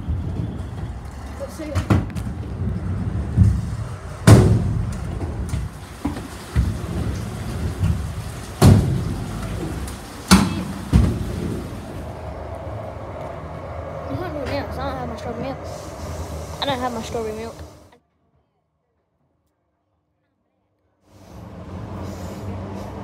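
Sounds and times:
scooter wheels rolling on concrete: 0:00.0 - 0:17.9.

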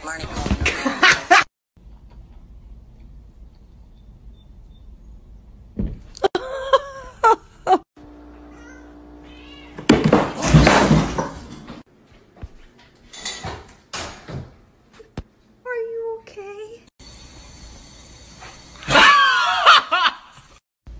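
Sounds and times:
kitten meowing: 0:08.5 - 0:09.8.

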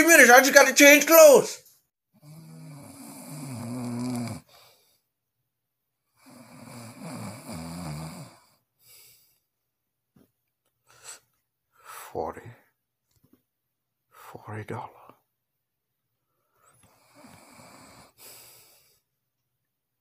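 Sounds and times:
man snoring: 0:02.2 - 0:04.9, 0:06.2 - 0:08.6, 0:16.9 - 0:19.0.

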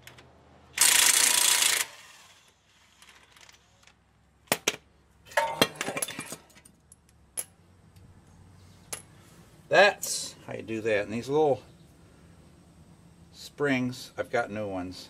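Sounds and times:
loose brake parts clattering: 0:05.3 - 0:07.6.

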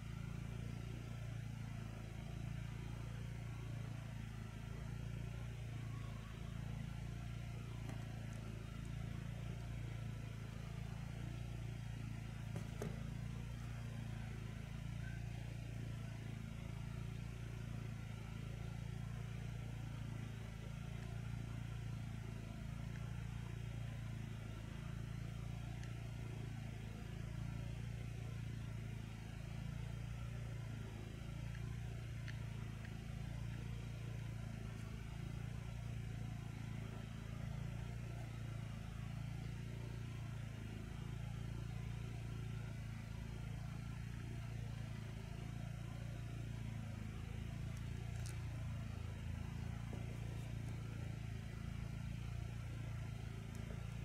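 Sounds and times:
low mechanical drone: 0:00.0 - 0:54.0.

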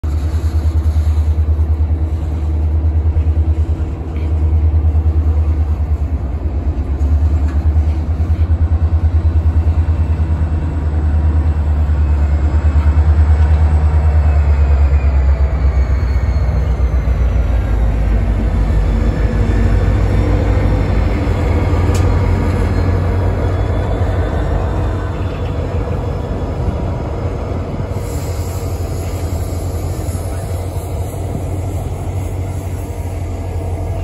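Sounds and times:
freight cars rumbling past: 0:00.0 - 0:34.0.

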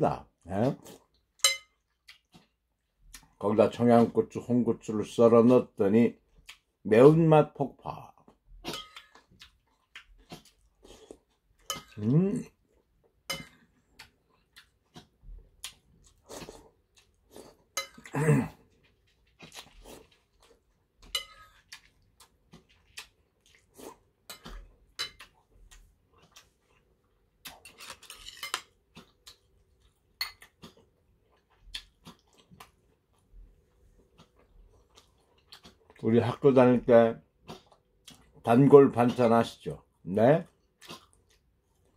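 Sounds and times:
spoon clinking on porcelain bowl: 0:01.4 - 0:01.8, 0:08.7 - 0:09.1, 0:17.8 - 0:18.1, 0:21.1 - 0:21.6.

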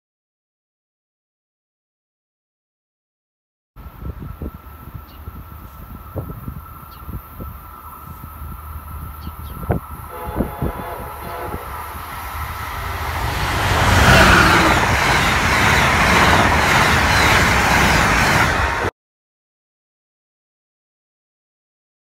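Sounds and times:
train wheels rushing on rail: 0:03.8 - 0:18.9.

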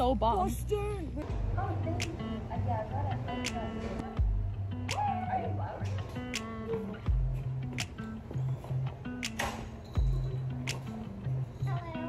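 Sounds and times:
held bass notes: 0:00.0 - 0:09.3
guitar: 0:00.0 - 0:12.0
steady beat: 0:03.3 - 0:05.3, 0:06.2 - 0:09.4, 0:10.0 - 0:11.4
deep kick drum: 0:04.2 - 0:04.7, 0:07.1 - 0:07.5, 0:10.0 - 0:10.3.

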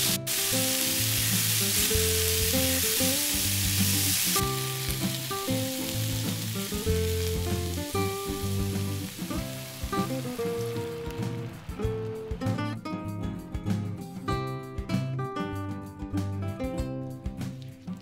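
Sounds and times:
vegetables sizzling in a pan: 0:00.0 - 0:12.4
background music: 0:00.0 - 0:18.0.

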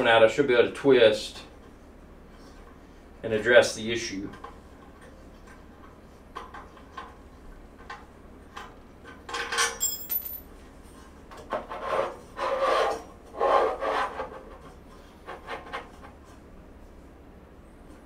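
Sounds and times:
metallic ring: 0:09.7 - 0:10.5.

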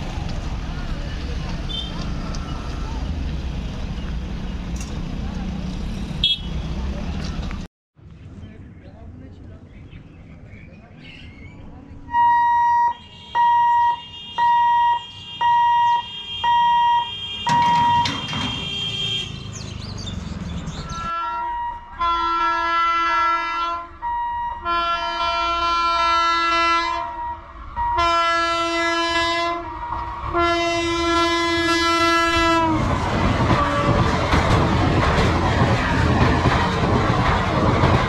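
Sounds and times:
train rumbling over crossing: 0:00.0 - 0:07.7, 0:12.0 - 0:38.0
level crossing hooter beeping: 0:12.1 - 0:18.7
locomotive horn blasts: 0:12.1 - 0:19.4, 0:21.1 - 0:32.9, 0:33.5 - 0:34.0.

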